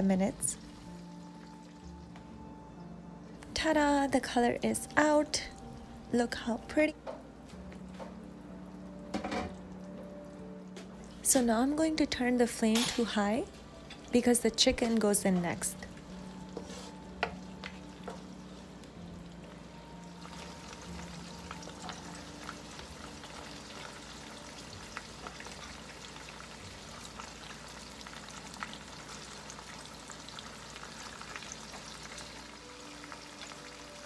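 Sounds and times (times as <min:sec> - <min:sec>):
food sizzling in hot oil: 0:12.6 - 0:34.0.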